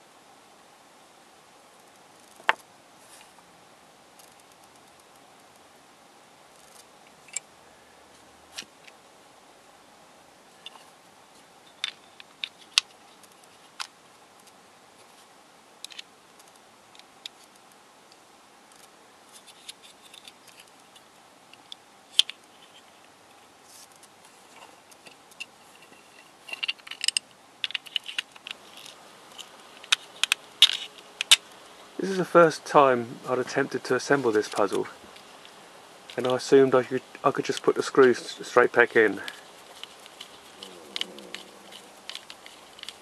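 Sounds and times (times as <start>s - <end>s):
plastic puzzle pieces clicking: 26.5s - 31.4s, 36.1s - 36.5s, 39.2s - 43.0s.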